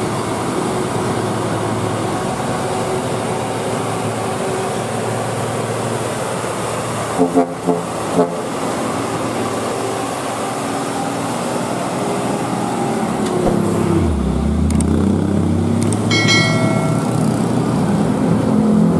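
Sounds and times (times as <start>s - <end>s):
diesel truck engine driving past: 5.9s - 18.9s
brief high-pitched tone: 16.1s - 17.4s.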